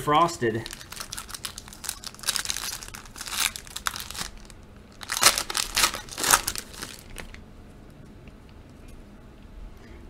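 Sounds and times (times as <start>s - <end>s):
foil wrapper crinkling and tearing: 0.5s - 7.4s.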